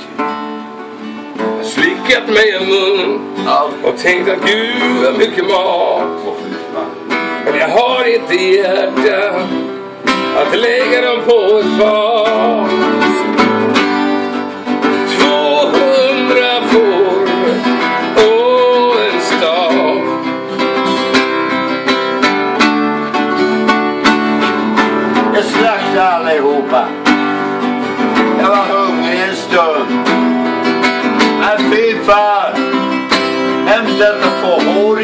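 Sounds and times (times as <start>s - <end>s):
acoustic guitar strummed and picked: 0.0s - 35.0s.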